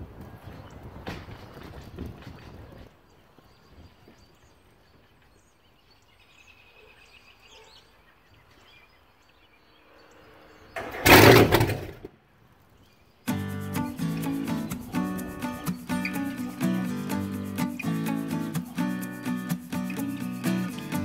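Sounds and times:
faint bird chirps: 3.0s - 10.8s.

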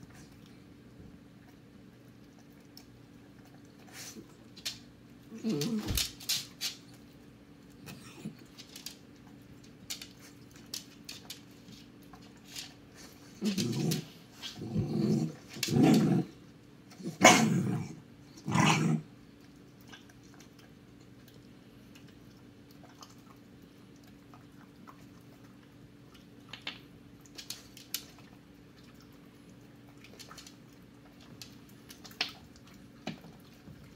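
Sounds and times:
low steady hum: 0.0s - 33.9s
small dog growling: 5.3s - 6.0s, 13.3s - 16.4s.

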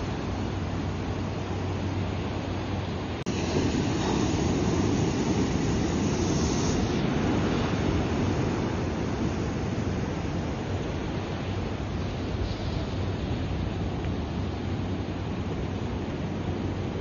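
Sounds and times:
ocean surf washing ashore: 0.0s - 17.0s.

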